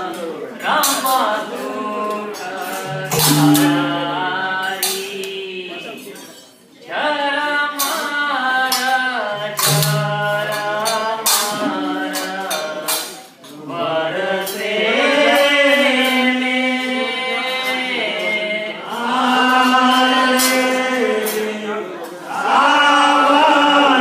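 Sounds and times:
devotional singing: 0:00.6 - 0:05.7, 0:06.9 - 0:24.0
sharp percussion strikes: 0:02.8 - 0:05.0, 0:09.4 - 0:12.3.

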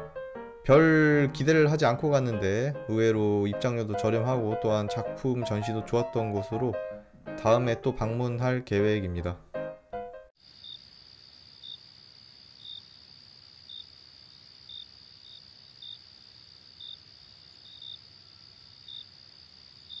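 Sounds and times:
insect chirps: 0:10.4 - 0:20.0
insects trilling: 0:10.4 - 0:20.0.

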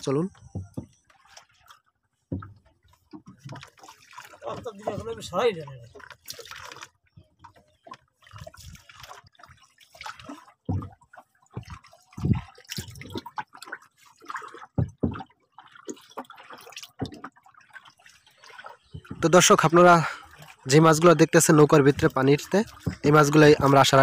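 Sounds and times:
water splashing and dripping: 0:00.0 - 0:24.0
dull knocks: 0:00.4 - 0:01.0, 0:02.3 - 0:03.6, 0:10.6 - 0:12.5, 0:14.7 - 0:15.3, 0:21.9 - 0:23.7.

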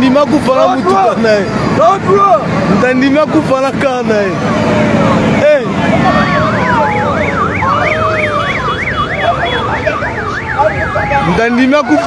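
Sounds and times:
low rumble of street traffic: 0:00.0 - 0:12.0
siren yelping: 0:04.3 - 0:12.0.

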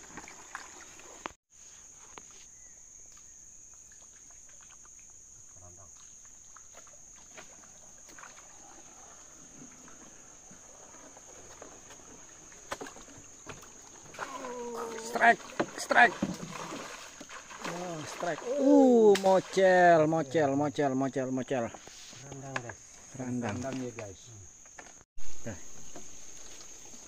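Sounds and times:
insects droning: 0:00.0 - 0:27.0
canoe paddle knocks and splashes: 0:06.0 - 0:19.8.

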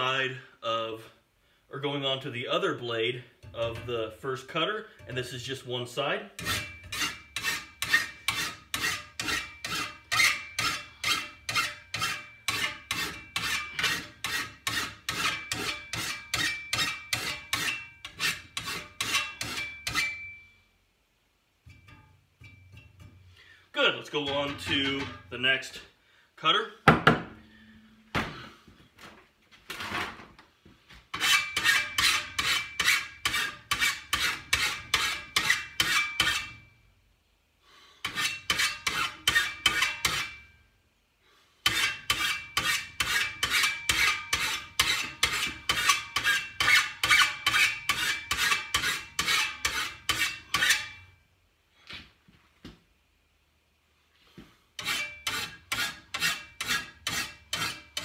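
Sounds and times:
hand file scraping steel blade: 0:06.4 - 0:20.3, 0:24.1 - 0:25.2, 0:31.1 - 0:36.7, 0:38.0 - 0:40.6, 0:41.6 - 0:51.1, 0:54.8 - 0:58.0.

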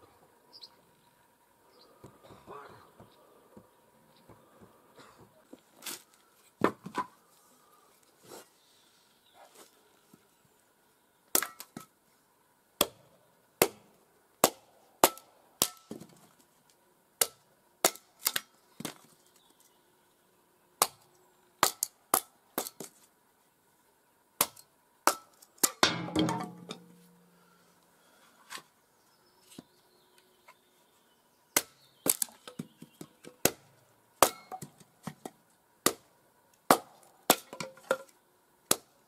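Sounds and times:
sharp chopping strikes: 0:13.6 - 0:16.0.

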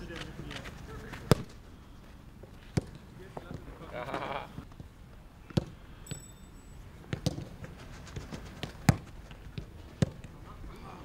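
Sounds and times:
footballs thudding: 0:01.1 - 0:01.6, 0:02.4 - 0:03.7, 0:05.5 - 0:06.2, 0:07.0 - 0:10.4.

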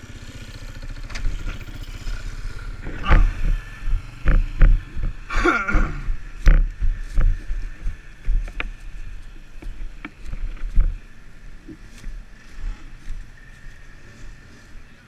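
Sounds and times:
atv engines rumbling: 0:00.0 - 0:15.0
knocks and thumps: 0:02.8 - 0:08.8.

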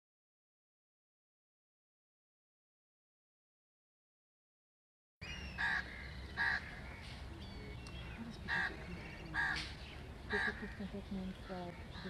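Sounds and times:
low outdoor background noise: 0:05.2 - 0:12.0
crows cawing: 0:05.5 - 0:07.2, 0:08.0 - 0:10.9.

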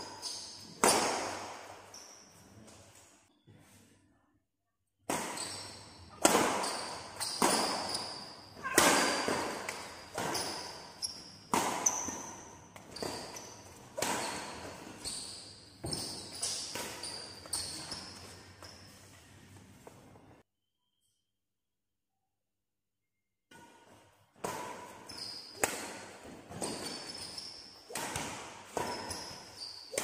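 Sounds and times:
shoe squeaks: 0:00.0 - 0:00.9, 0:01.8 - 0:02.5, 0:05.3 - 0:19.1, 0:25.0 - 0:25.6, 0:26.5 - 0:27.9, 0:28.8 - 0:30.0
racket hitting shuttlecock: 0:00.0 - 0:01.8, 0:05.0 - 0:18.2, 0:23.6 - 0:30.0
footfalls in a hall: 0:05.0 - 0:20.4, 0:23.5 - 0:30.0.

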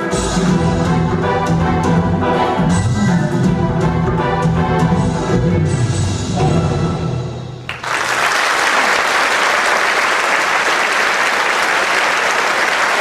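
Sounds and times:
dance music: 0:00.0 - 0:06.6
audience applauding: 0:07.7 - 0:13.0.

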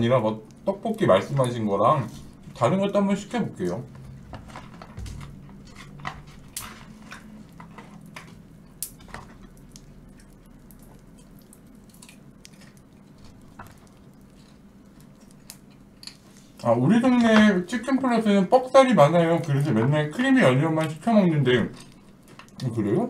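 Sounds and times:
faint low hum: 0:00.0 - 0:23.0
person chewing food: 0:03.9 - 0:16.7, 0:21.7 - 0:22.7.

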